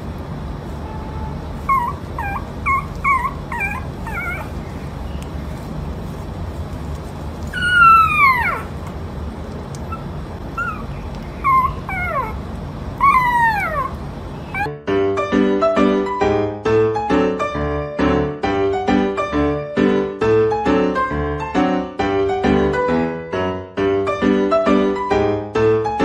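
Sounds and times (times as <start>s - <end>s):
puppy howl-like cry: 1.6s - 4.6s, 7.5s - 8.8s, 9.9s - 12.4s, 13.0s - 14.7s
puppy whimpering and yipping: 1.6s - 5.7s, 7.5s - 9.0s, 9.8s - 14.7s.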